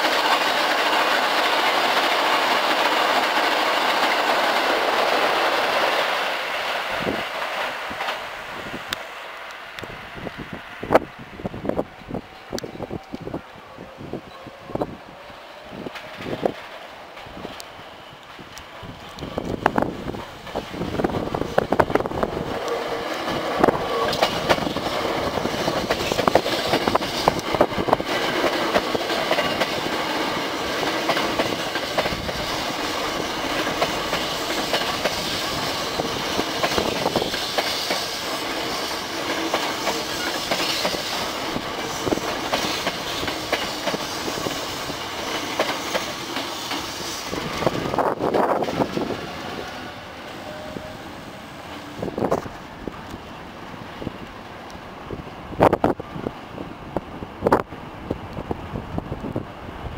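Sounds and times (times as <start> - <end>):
train wheels clacking on rail joints: 0.0 - 9.0, 15.8 - 51.0
electric train passing: 0.0 - 59.9.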